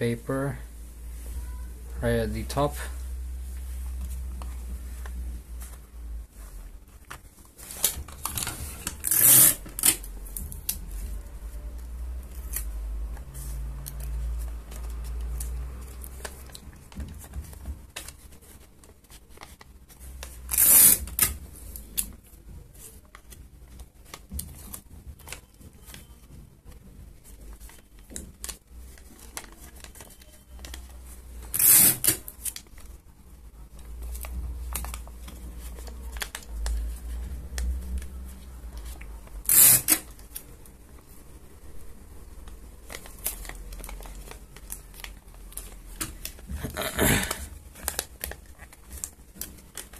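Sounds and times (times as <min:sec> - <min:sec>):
paper and card handled: 0:00.9 - 0:49.9
paper ripping: 0:07.6 - 0:11.1, 0:31.4 - 0:32.6, 0:38.8 - 0:40.5.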